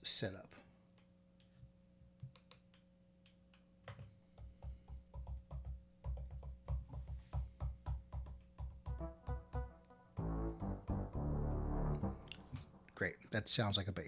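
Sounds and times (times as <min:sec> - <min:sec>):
synth bass notes: 0:08.9 - 0:13.2.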